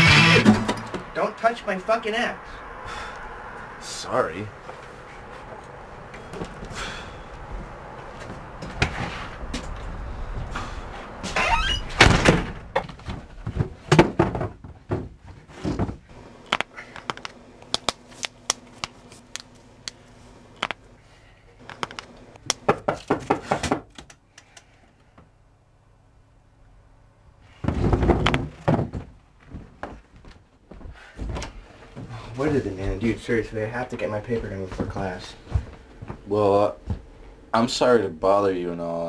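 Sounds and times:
door banging shut: 0.0s - 1.1s, 11.4s - 12.9s.

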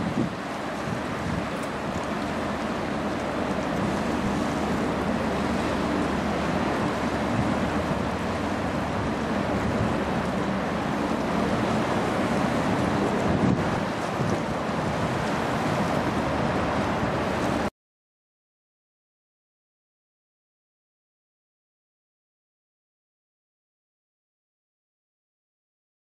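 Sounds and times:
choppy river water: 0.0s - 17.7s
ship engine drone: 0.0s - 17.7s
wind buffeting microphone: 0.0s - 17.7s.

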